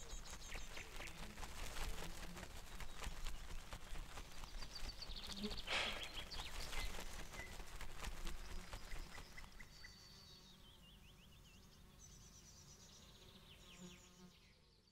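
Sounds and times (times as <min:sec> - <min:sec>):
rapid faint clicks: 0:00.0 - 0:09.6
birds chirping: 0:00.0 - 0:14.8.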